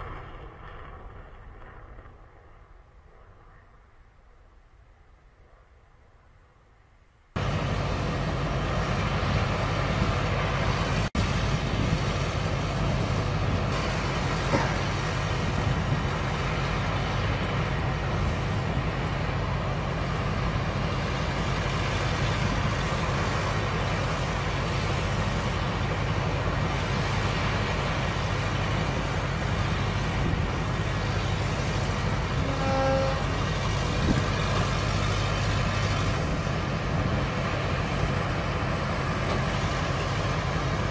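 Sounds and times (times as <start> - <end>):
truck diesel engine running: 7.4 - 40.9.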